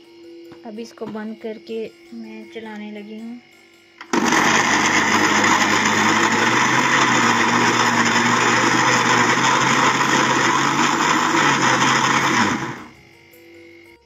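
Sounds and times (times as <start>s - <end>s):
mixer grinder motor running: 4.0s - 13.0s.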